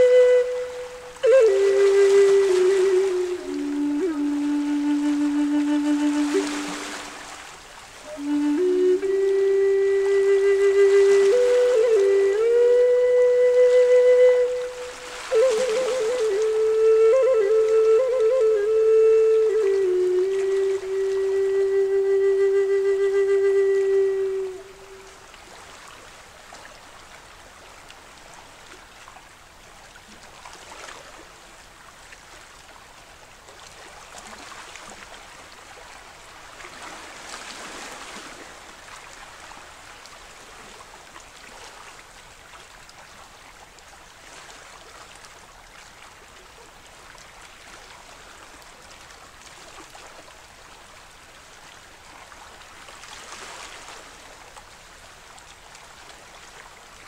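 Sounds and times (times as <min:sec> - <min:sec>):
waves lapping on rocks: 0:00.0 - 0:12.3, 0:13.4 - 0:17.2, 0:33.5 - 0:46.2, 0:52.0 - 0:57.0.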